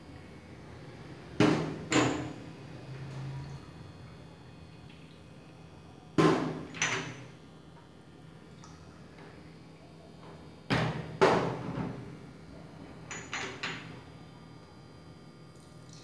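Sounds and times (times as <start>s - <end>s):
glass jars clinking: 13.1s - 13.8s.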